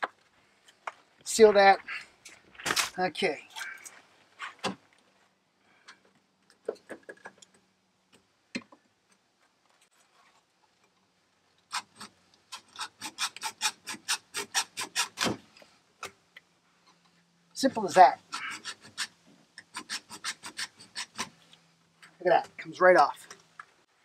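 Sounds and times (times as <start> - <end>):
hacksaw cutting plastic: 11.7 - 15.5, 18.0 - 21.4.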